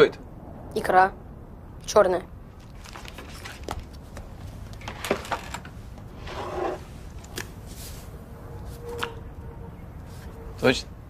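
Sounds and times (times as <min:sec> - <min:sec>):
rustle: 0:02.6 - 0:09.2.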